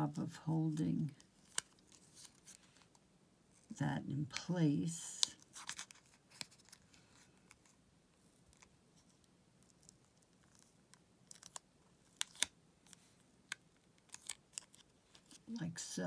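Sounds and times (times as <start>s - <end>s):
paper and paper clip handling: 9.6s - 13.1s, 13.9s - 15.4s.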